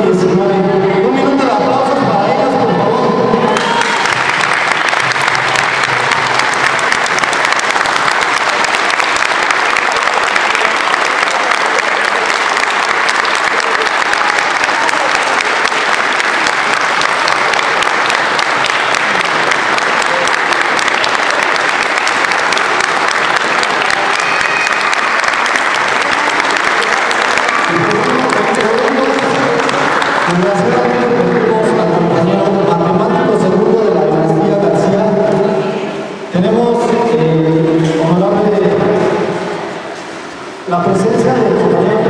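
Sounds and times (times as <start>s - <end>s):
crowd applauding: 3.4s - 33.5s.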